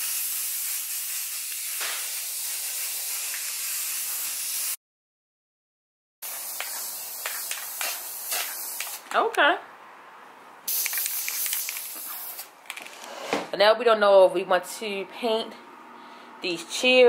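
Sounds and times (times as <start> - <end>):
aerosol spray paint hissing: 0.0 - 4.8, 6.2 - 9.1, 10.7 - 12.5.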